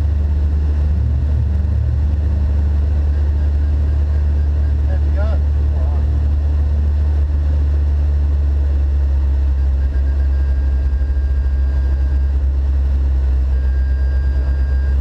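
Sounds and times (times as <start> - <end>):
car engine idling: 0.0 - 15.0
faint high whine: 8.2 - 15.0.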